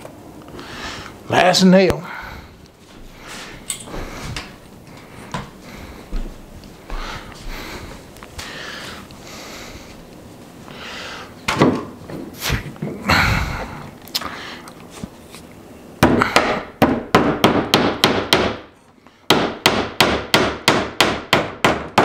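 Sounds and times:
hammer tapping nail into wood: 19.3s - 22.0s.

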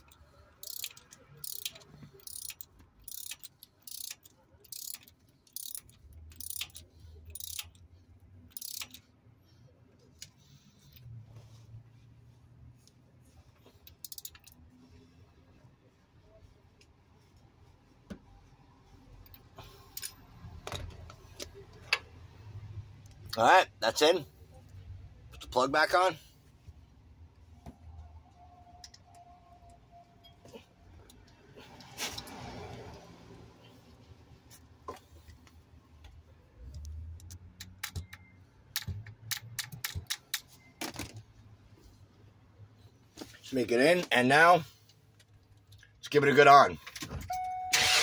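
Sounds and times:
ratchet clicks and knocks: 0.0s - 7.9s, 8.5s - 9.1s, 13.9s - 14.6s, 37.2s - 40.5s.

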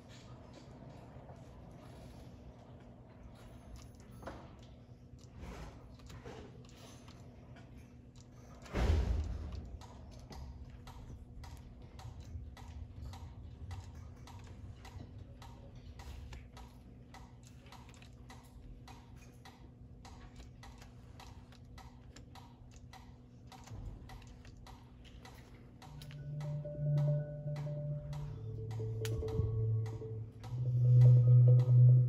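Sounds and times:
steady ticking: 10.7s - 32.0s
low held musical note: 26.2s - 32.0s.

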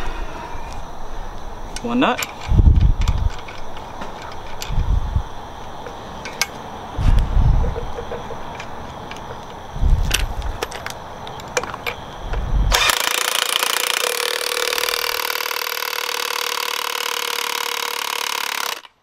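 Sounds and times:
handling clicks and knocks: 1.7s - 4.8s, 5.6s - 6.7s, 7.6s - 12.4s.

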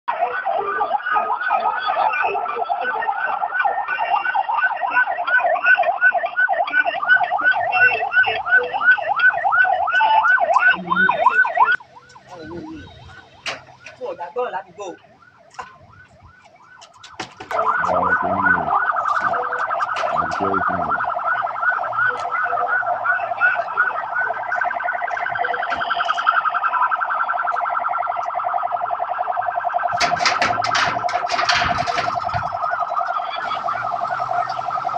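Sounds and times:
electronic siren yelping: 0.1s - 34.9s
metallic clatter: 29.9s - 32.8s.

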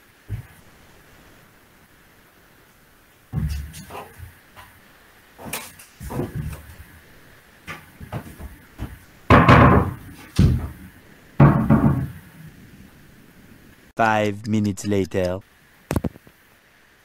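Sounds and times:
light knocks and bumps: 0.2s - 0.6s, 3.3s - 12.4s
wardrobe doors thudding shut: 0.3s - 0.6s, 3.3s - 4.7s, 5.4s - 7.0s, 7.7s - 12.2s.

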